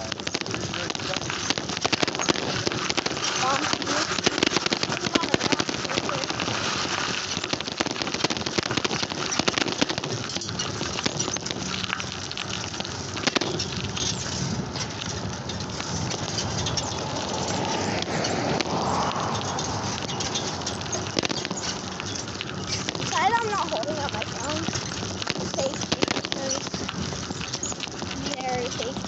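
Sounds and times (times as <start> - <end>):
bicycle tyre road noise: 0.0 - 29.0
bicycle clicks and rattles: 6.1 - 29.0.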